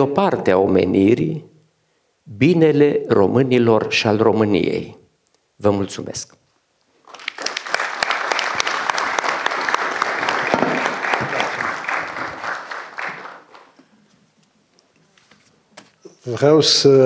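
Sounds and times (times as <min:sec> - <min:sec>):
audience applauding: 0:07.0 - 0:13.9.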